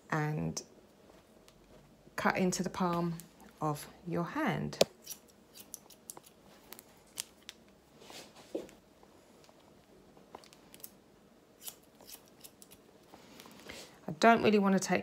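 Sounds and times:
scissors snipping hair: 4.8 - 7.6, 11.6 - 12.8.

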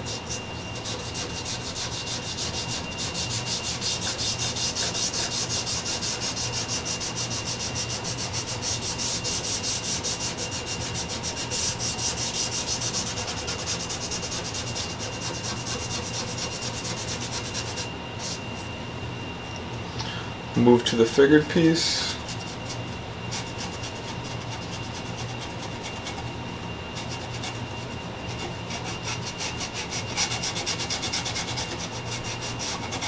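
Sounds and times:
applicator scrubbing wooden board: 0.0 - 18.4, 28.4 - 33.0.

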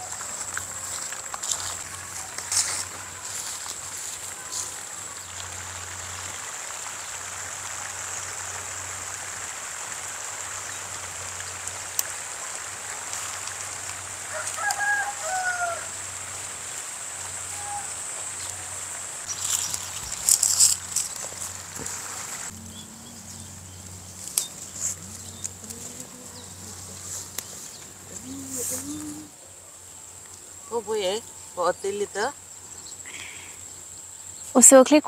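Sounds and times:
rooster crowing: 0.0 - 3.6, 14.2 - 16.3, 17.4 - 18.8.

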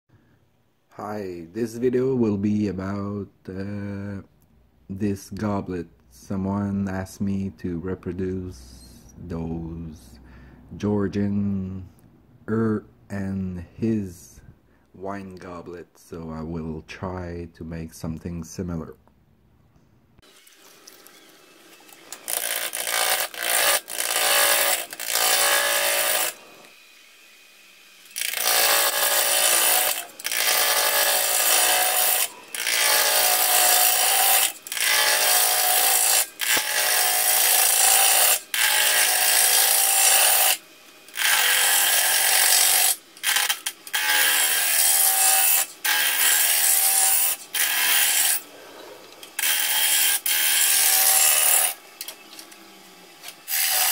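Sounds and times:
wood lathe spinning: 20.2 - 53.9.

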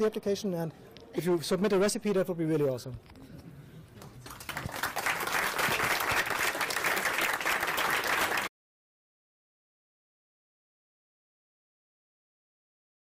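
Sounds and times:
audience applauding: 4.0 - 8.5.

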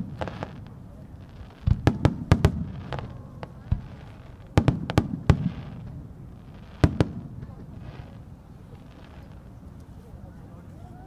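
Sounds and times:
firework booms: 0.0 - 9.4.

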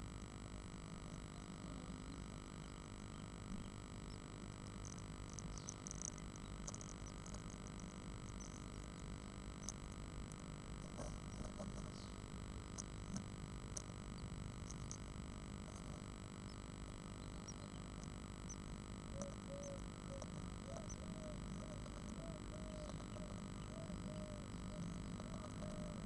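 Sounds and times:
electrical hum and hiss: 0.0 - 26.0
bird scratching in nest box: 10.8 - 12.2.

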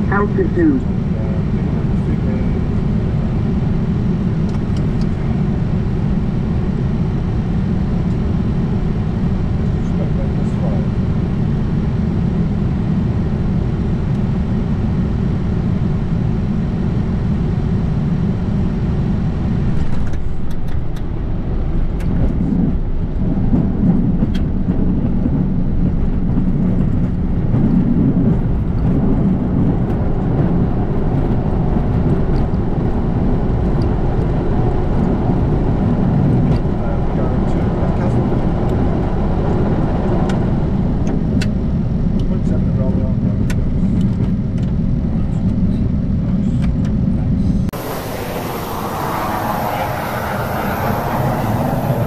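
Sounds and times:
low rumble of runway rollout: 0.0 - 52.0
jet engine and air rush: 47.4 - 52.0.

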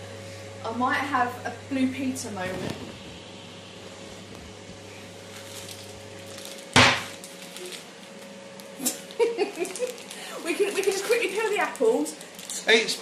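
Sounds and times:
steady low hum: 0.0 - 13.0
plastic packet crinkling: 5.3 - 13.0
loud knock or clatter: 6.8 - 7.1.

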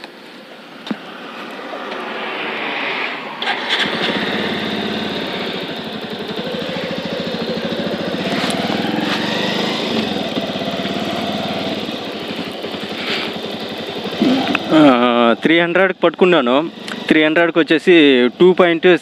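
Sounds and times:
motorcycle engine pulling away: 2.1 - 15.8, 16.4 - 17.4.

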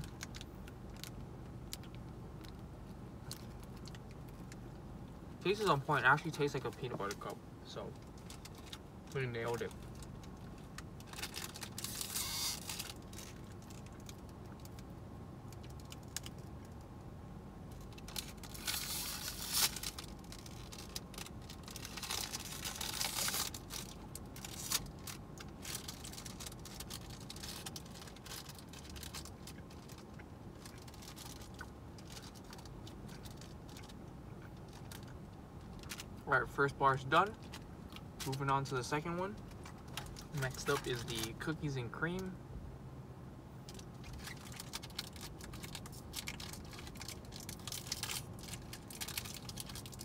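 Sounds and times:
plastic wrapper crinkling: 8.0 - 14.8, 17.7 - 36.1, 39.3 - 41.4, 43.7 - 50.0.

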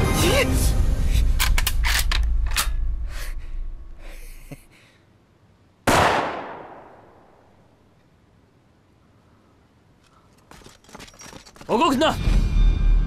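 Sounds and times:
echoing gunshot: 5.8 - 7.4.

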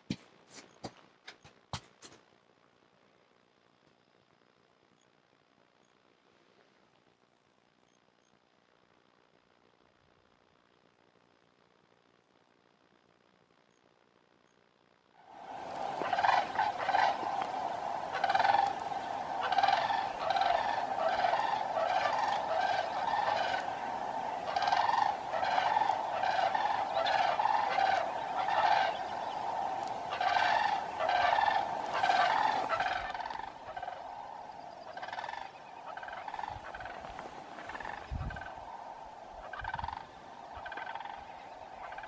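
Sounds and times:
cranes calling: 15.3 - 42.0.

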